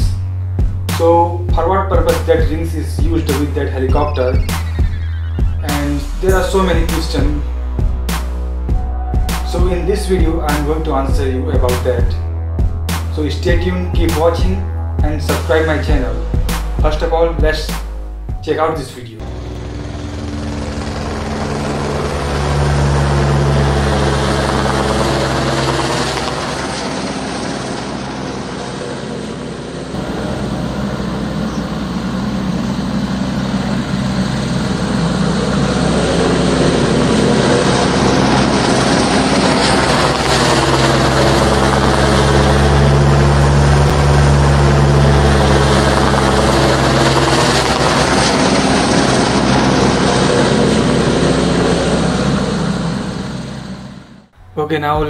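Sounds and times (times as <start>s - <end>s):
helicopter flying overhead: 0.0s - 18.1s, 18.9s - 54.4s.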